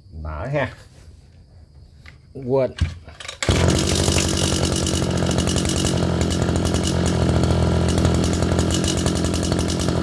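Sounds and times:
brush cutter engine running: 3.2s - 10.0s.

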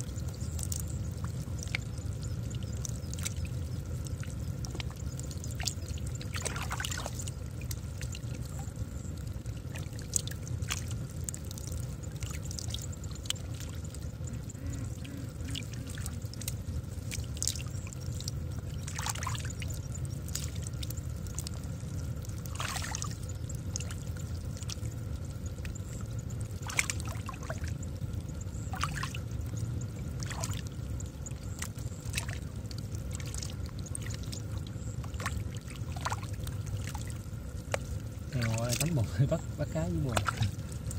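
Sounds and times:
low rumble: 0.0s - 40.9s
hands splashing through muddy water: 39.6s - 40.5s.

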